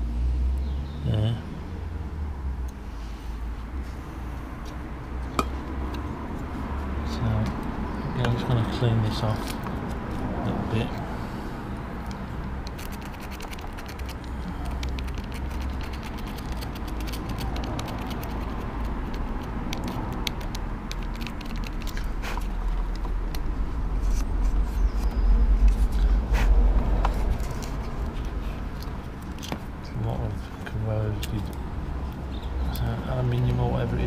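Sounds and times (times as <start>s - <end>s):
screwdriver scraping and clicking: 12.1s - 23.4s.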